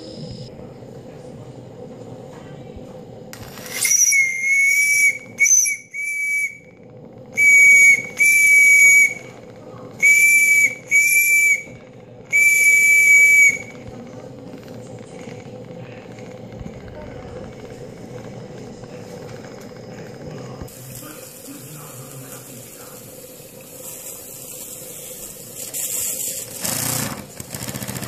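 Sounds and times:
steam hissing: 0:03.3 - 0:13.9, 0:14.9 - 0:28.0
steam whistle blasts: 0:03.7 - 0:09.4, 0:10.0 - 0:13.8.

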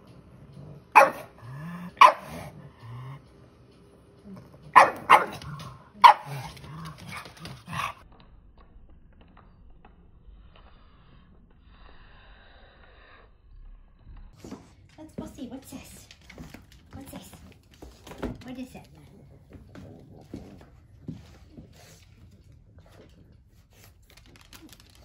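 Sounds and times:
dog barking: 0:01.0 - 0:01.4, 0:02.0 - 0:02.5, 0:04.7 - 0:07.2.

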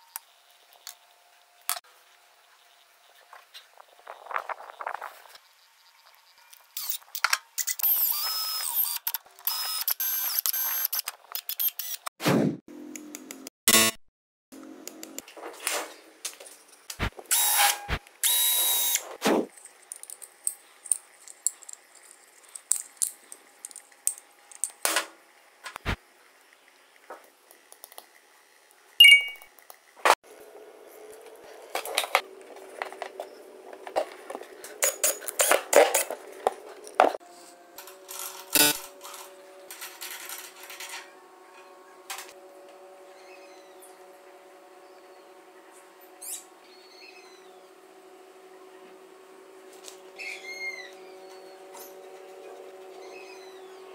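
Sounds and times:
short ringing ding: 0:29.0 - 0:29.4.

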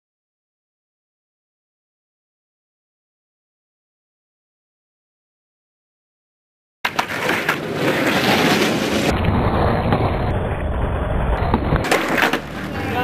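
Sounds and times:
skateboard clacks: 0:06.8 - 0:13.0
skateboard wheels rolling on pavement: 0:06.8 - 0:13.0.

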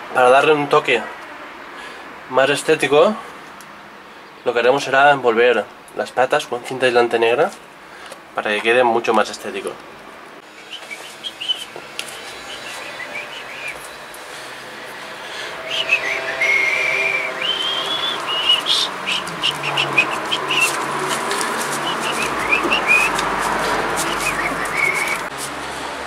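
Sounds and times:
bird singing whistled phrases: 0:10.6 - 0:11.7, 0:12.5 - 0:13.8, 0:15.6 - 0:20.8, 0:21.8 - 0:23.2, 0:24.1 - 0:25.3.

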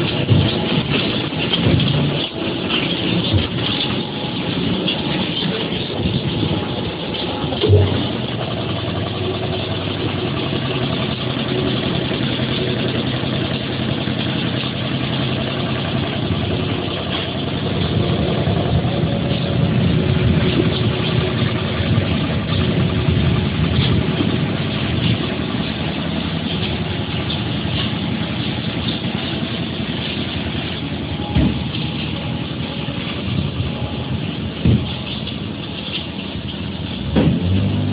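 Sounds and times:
machinery droning: 0:00.0 - 0:37.9.

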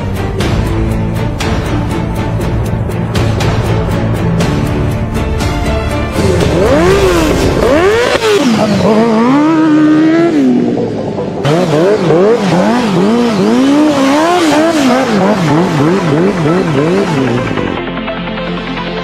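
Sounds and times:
motorcycle engine revving: 0:06.0 - 0:17.8.

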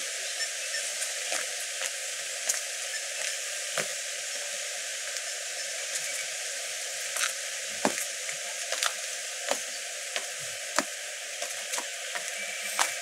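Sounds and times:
light rain hiss: 0:00.0 - 0:13.0.

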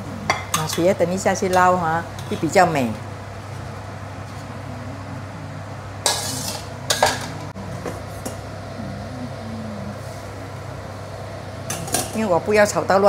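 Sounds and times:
steady low hum: 0:00.0 - 0:13.0
metal spatula scraping in wok: 0:06.1 - 0:07.2.

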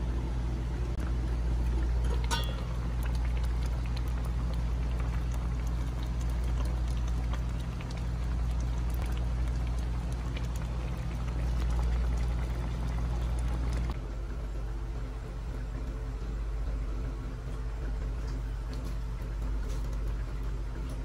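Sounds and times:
steady low hum: 0:00.0 - 0:21.0
sauce bubbling and popping in a pan: 0:01.0 - 0:14.0.

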